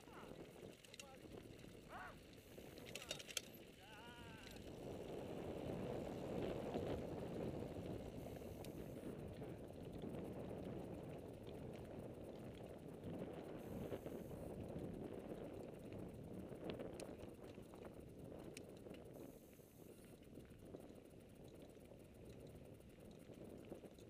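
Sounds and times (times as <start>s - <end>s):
bike frame rattling and clicking: 0.0s - 19.2s, 20.0s - 24.0s
bike tyres rumbling on gravel: 0.0s - 19.2s.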